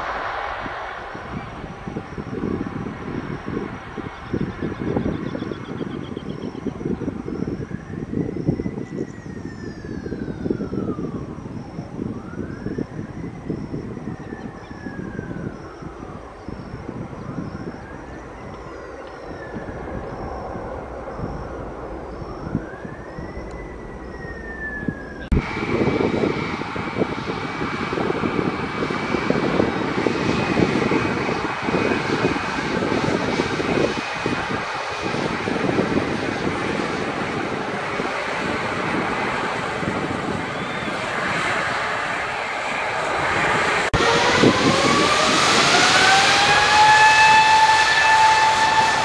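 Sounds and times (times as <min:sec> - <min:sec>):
departing jet climbing: 0:00.0 - 0:49.0
jet engines running close by: 0:00.0 - 0:49.0
jet engines spooling up: 0:00.0 - 0:49.0.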